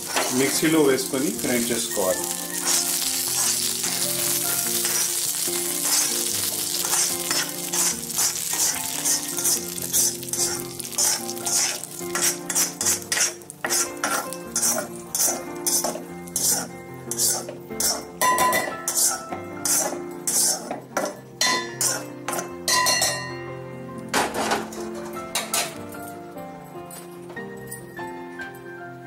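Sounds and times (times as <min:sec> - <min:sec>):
hot oil sizzling: 0:00.0 - 0:25.9
steel spoon scraping metal: 0:02.4 - 0:23.2.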